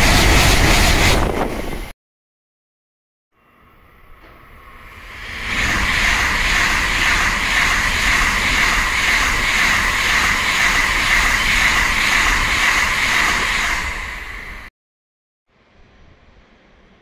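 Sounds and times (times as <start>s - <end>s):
high-speed train passing: 0.0s - 1.9s, 3.4s - 14.7s.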